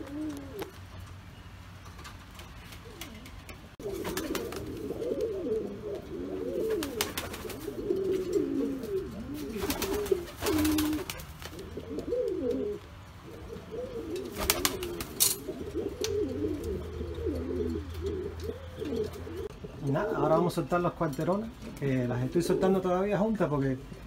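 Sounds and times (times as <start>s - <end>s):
pigeons cooing: 0.0s - 1.0s, 2.4s - 20.9s, 21.5s - 23.2s
wings flapping: 2.0s - 5.3s, 6.6s - 12.4s, 14.2s - 16.2s.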